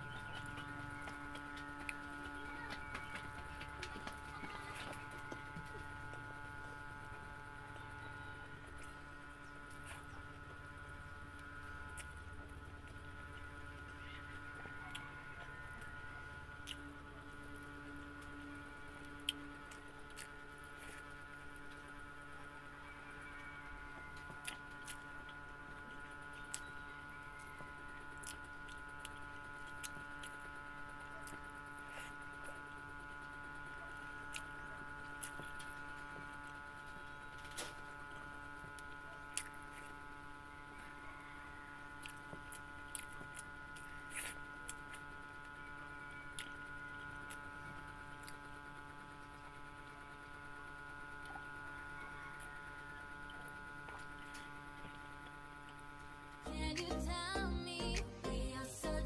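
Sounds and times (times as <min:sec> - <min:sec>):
steady electrical hum: 0:00.0 - 0:59.0
quiet chewing: 0:11.3 - 0:13.5, 0:14.6 - 0:16.0, 0:16.6 - 0:16.9, 0:17.6 - 0:21.9, 0:24.1 - 0:26.8, 0:28.2 - 0:30.5, 0:31.1 - 0:40.1, 0:41.9 - 0:45.2, 0:46.3 - 0:48.5.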